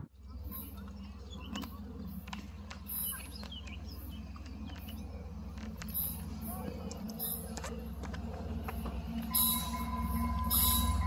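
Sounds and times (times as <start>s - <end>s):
steady low hum: 0.0s - 11.0s
small birds chirping: 0.2s - 11.0s.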